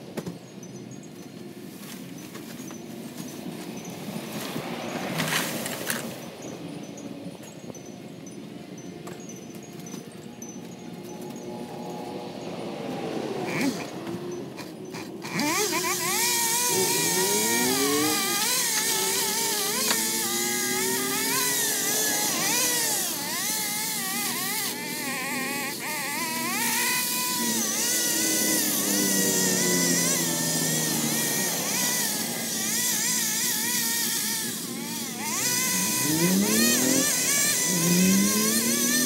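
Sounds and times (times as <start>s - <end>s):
chainsaw revving and cutting wood: 9.1s - 39.0s.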